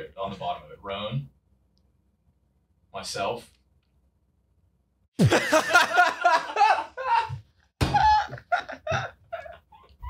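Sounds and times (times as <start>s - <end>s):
men laughing: 5.2s - 10.0s.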